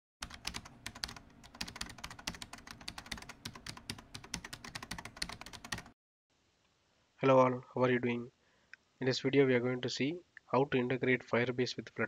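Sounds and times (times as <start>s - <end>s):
fast keyboard typing: 0.2s - 6.0s.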